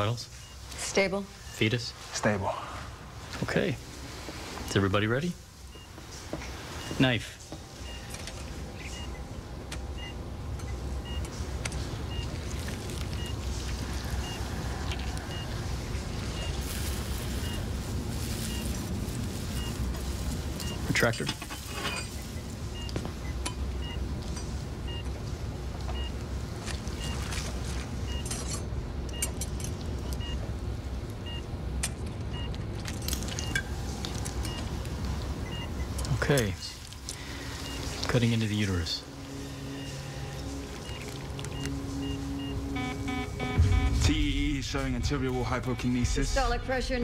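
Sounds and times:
patient monitor beeping: 0.0s - 2.4s, 4.6s - 21.3s, 21.9s - 46.8s
continuous low hum: 0.0s - 47.0s
patient monitor short high beeps: 39.6s - 44.2s.

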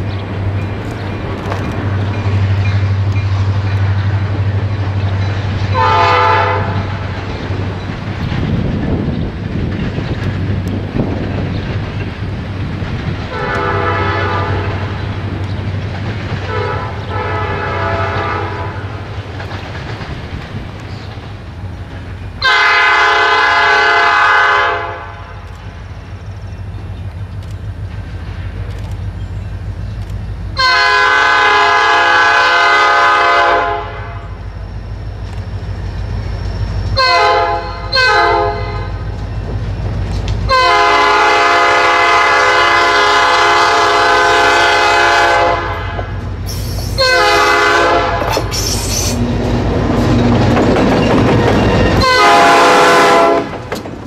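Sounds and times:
rumble of diesel engines and freight cars: 0.0s - 54.0s
distant horn blasts: 5.7s - 7.0s, 13.3s - 15.0s, 16.5s - 18.9s, 22.4s - 25.4s, 30.6s - 34.4s, 37.0s - 39.0s, 40.5s - 46.2s, 47.0s - 48.6s, 51.4s - 53.6s
locomotive air horn blasts: 5.8s - 6.9s, 13.3s - 14.9s, 16.5s - 18.8s, 22.4s - 25.3s, 30.6s - 34.4s, 37.0s - 38.9s, 40.5s - 46.1s, 47.0s - 49.2s, 51.9s - 53.5s.

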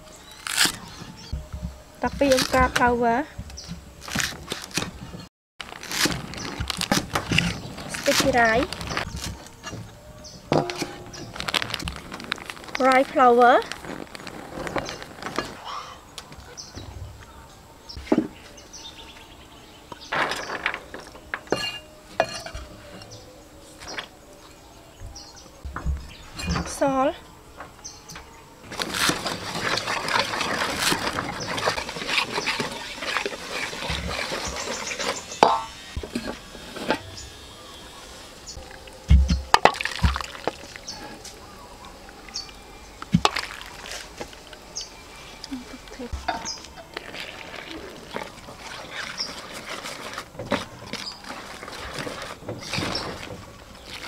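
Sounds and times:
bowl knocking against metal pot: 10.5s - 11.3s
water sloshing and pouring: 28.7s - 35.2s, 38.6s - 41.1s, 43.2s - 44.1s, 46.9s - 54.0s.

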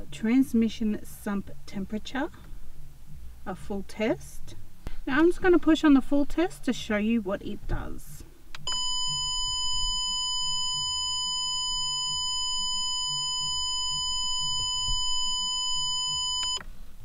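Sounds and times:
continuous electronic beep: 8.6s - 16.6s.

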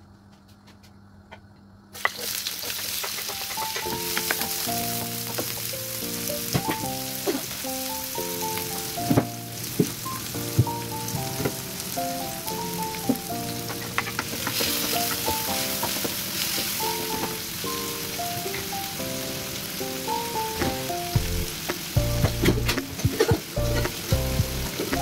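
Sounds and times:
food sizzling in hot oil: 2.0s - 25.0s
background music melody: 3.0s - 25.0s.

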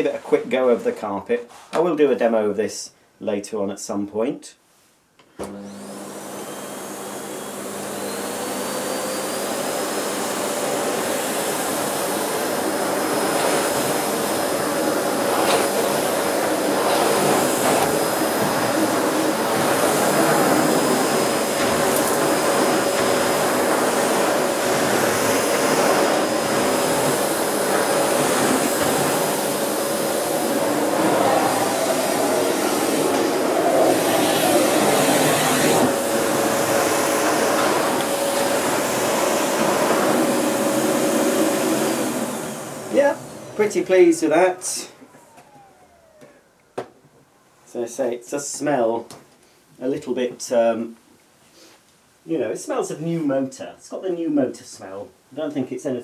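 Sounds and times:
vacuum head pushed over carpet: 5.4s - 44.2s, 45.0s - 47.0s
vacuum cleaner motor whine: 5.4s - 47.1s.

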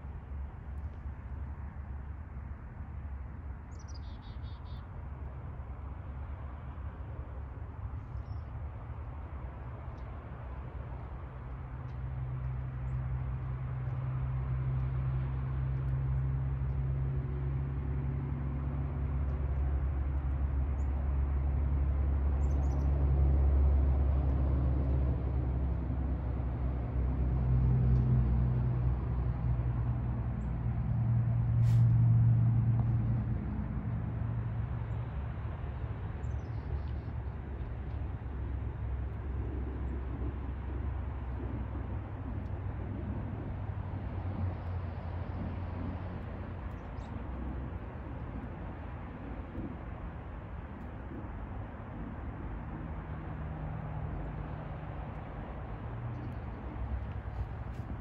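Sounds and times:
distant motor engines rumbling: 0.0s - 58.0s
faint bird chirps: 3.7s - 4.9s.

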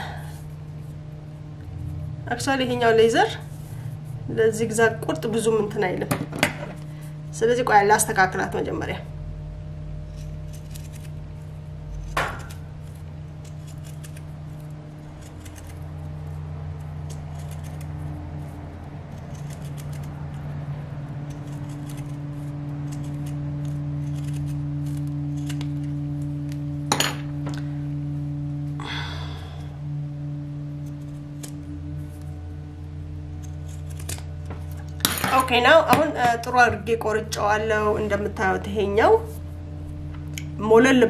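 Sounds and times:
low humming drone: 0.0s - 41.0s
scissors snipping leather: 10.1s - 11.2s, 12.0s - 15.9s, 17.0s - 18.0s, 19.1s - 20.5s, 21.2s - 26.6s, 33.4s - 34.8s.

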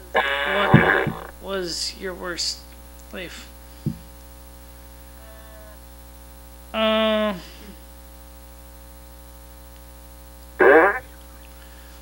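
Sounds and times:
electrical mains hum: 0.0s - 12.0s
woman hesitation sound: 6.8s - 7.6s.

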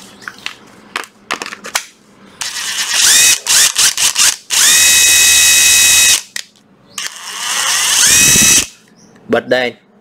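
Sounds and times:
impact driver motor whine: 2.4s - 6.3s, 7.0s - 8.8s.

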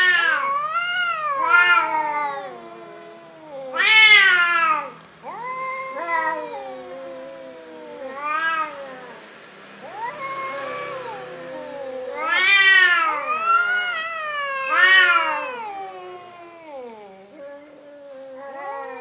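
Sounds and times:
cats yowling: 0.0s - 19.0s.

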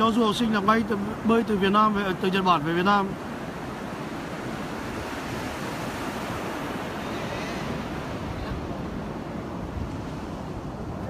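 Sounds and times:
sea surf washing: 0.0s - 11.0s
wind rumbling on microphone: 3.2s - 11.0s.

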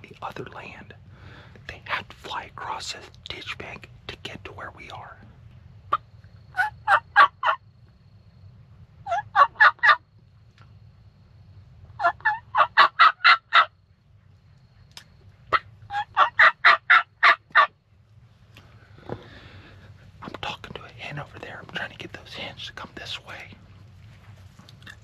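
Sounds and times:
turkey call yelps: 5.9s - 7.6s, 9.0s - 10.0s, 12.0s - 13.8s, 15.5s - 17.8s.

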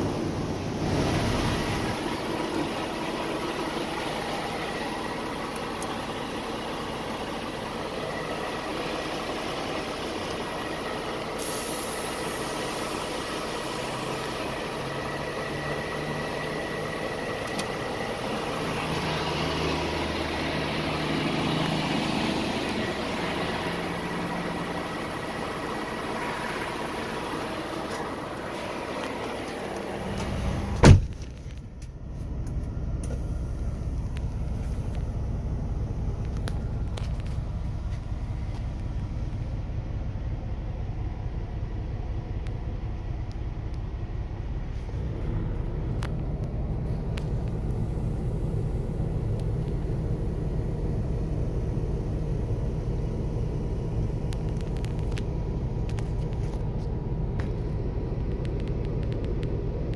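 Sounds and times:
truck engine idling: 0.0s - 59.9s
loud thump: 30.7s - 31.3s.

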